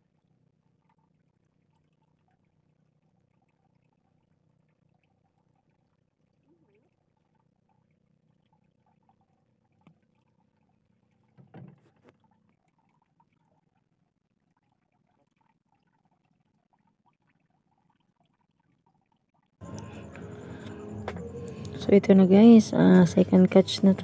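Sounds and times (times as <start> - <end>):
person speaking: 19.7 - 24.0.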